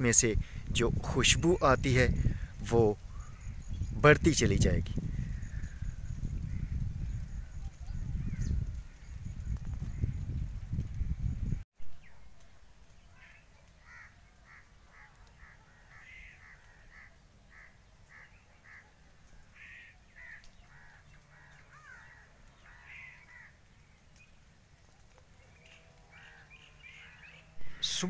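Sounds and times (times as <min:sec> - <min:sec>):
birds calling: 0:00.0 - 0:12.2, 0:12.9 - 0:28.0
low microphone rumble: 0:04.8 - 0:11.6.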